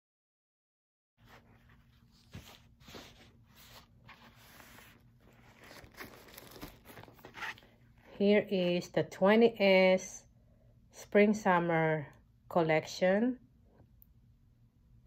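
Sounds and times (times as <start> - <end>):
tissue paper rustling: 1.2 - 7.7.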